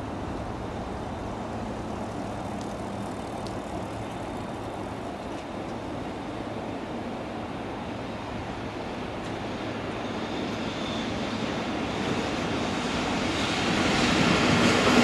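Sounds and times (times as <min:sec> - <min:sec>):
electric locomotive rumbling: 0:00.0 - 0:15.0
faint clicks: 0:02.5 - 0:04.5.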